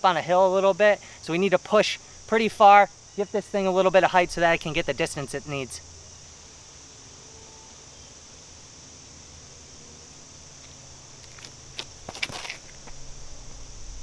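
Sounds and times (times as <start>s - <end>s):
insects buzzing: 0.0s - 14.0s
footsteps on tee pad: 10.6s - 13.1s.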